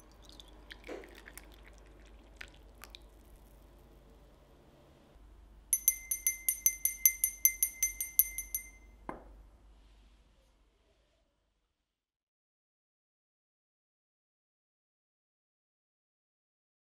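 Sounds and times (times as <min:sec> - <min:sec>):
hand bell ringing rapidly: 0:05.8 - 0:08.8.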